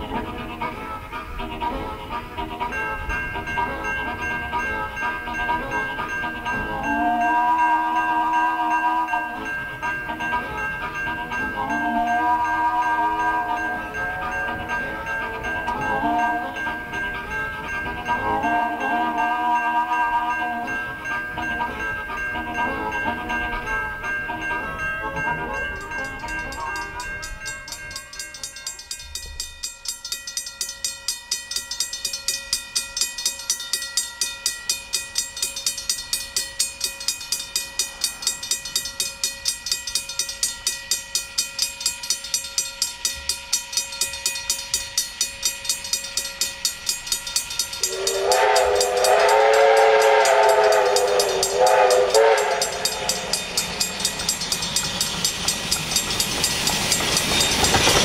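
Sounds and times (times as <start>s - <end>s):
steam whistle: 0.0s - 24.8s, 47.8s - 54.6s
steam locomotive chuffing: 0.0s - 58.0s.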